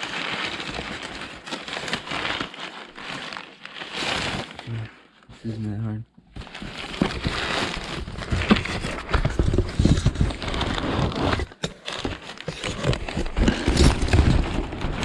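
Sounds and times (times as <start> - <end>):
packaging rustling: 0.0 - 5.2, 6.3 - 15.0
cardboard box being pulled open: 6.6 - 15.0.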